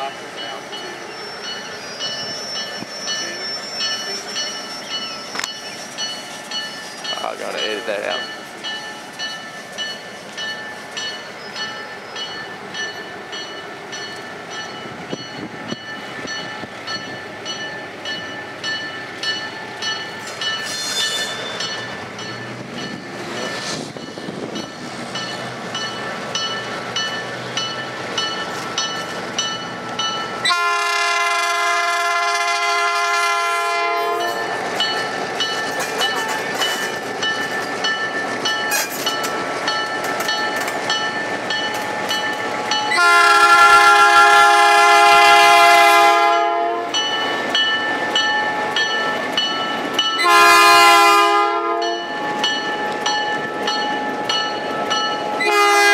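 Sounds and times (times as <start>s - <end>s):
diesel locomotive running: 0.0s - 55.9s
locomotive horn blast: 30.5s - 34.4s, 42.9s - 47.0s, 50.2s - 52.1s, 55.4s - 55.9s.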